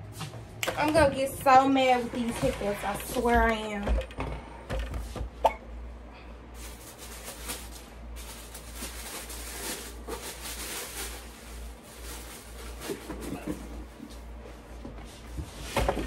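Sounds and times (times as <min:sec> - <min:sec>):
steady low hum: 0:00.0 - 0:16.0
clothing and plastic bags rustling: 0:00.8 - 0:03.8, 0:06.4 - 0:16.0.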